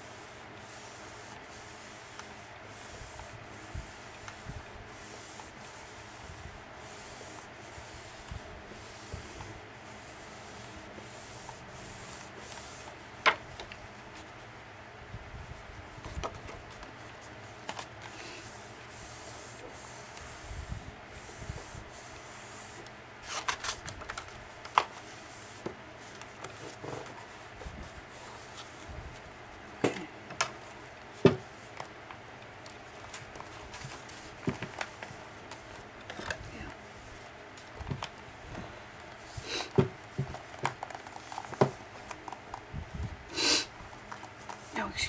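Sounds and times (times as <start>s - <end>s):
paper pages rustling: 23.2s - 25.0s, 40.3s - 42.7s.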